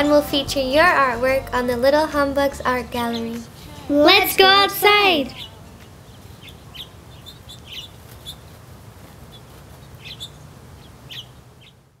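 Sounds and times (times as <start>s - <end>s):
small birds chirping: 2.6s - 12.0s.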